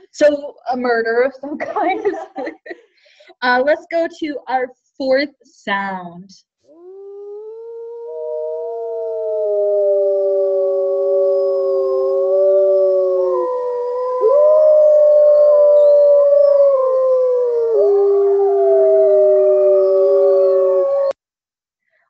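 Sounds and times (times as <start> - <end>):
wolves howling in chorus: 6.8 - 21.1.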